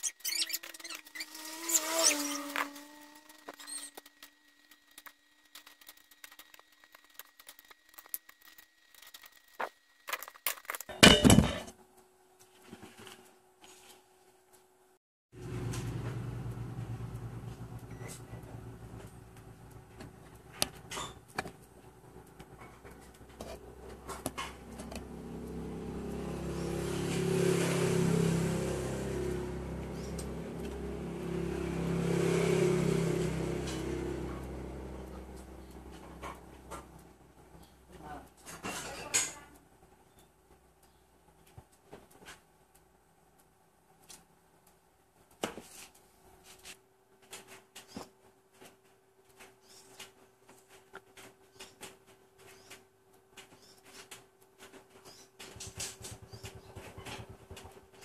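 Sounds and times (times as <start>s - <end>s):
objects clattering onto table: 10.1s - 11.8s
vehicle engine humming: 15.4s - 38.2s.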